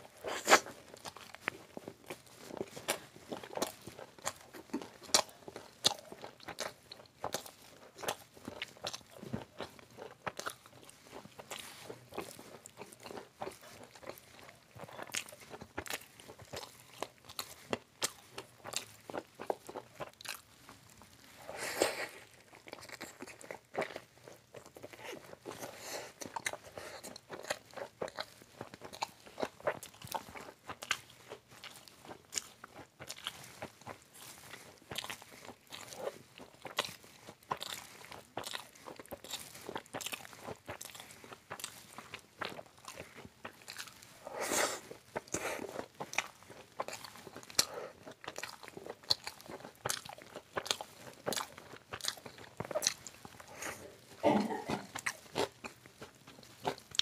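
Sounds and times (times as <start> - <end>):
person crunching fried snacks: 21.8 - 57.0.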